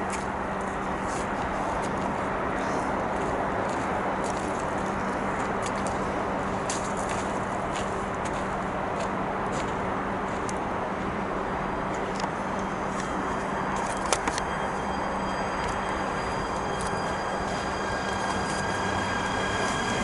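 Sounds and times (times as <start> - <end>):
train rumbling: 0.0 - 20.0
low hum: 10.6 - 20.0
high whining tones: 12.3 - 20.0.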